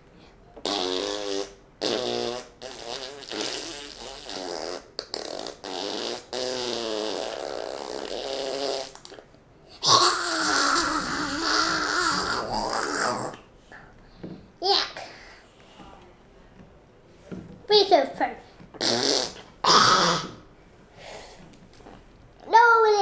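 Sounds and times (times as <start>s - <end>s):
boy making buzzing raspberries: 0.6s - 15.6s, 17.6s - 23.0s
boy's open-mouthed vocal noise: 9.8s - 13.4s, 18.8s - 20.4s.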